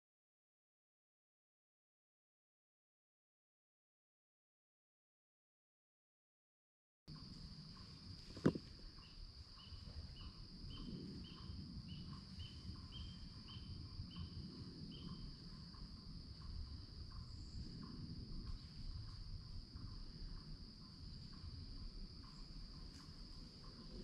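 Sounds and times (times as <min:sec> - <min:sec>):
crickets droning: 0:07.1 - 0:24.0.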